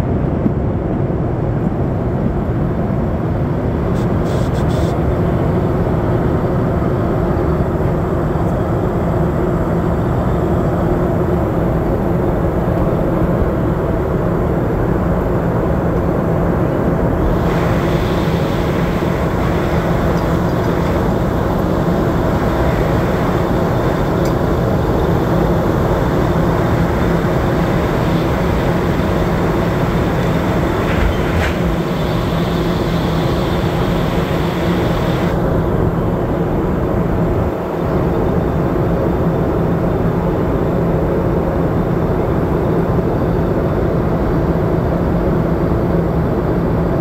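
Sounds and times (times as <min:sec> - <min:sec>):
aircraft engine and airflow drone: 0:00.0 - 0:47.0
high hiss: 0:04.0 - 0:05.0, 0:17.2 - 0:35.4.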